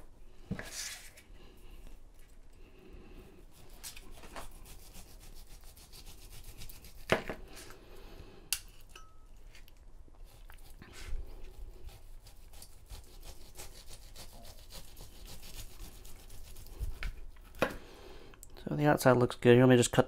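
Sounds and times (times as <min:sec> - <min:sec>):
knife sawing through meat: 0:04.4 - 0:07.1, 0:10.2 - 0:16.9.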